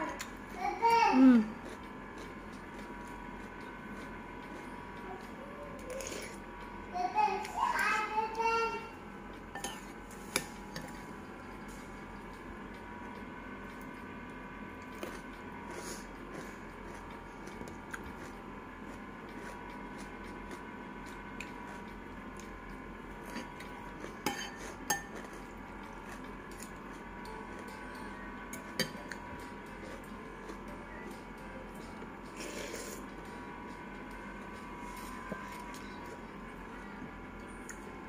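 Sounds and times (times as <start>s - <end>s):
steady hum: 0.0s - 38.0s
cutlery clinking against a bowl: 9.5s - 11.0s, 23.3s - 25.5s, 28.5s - 29.2s.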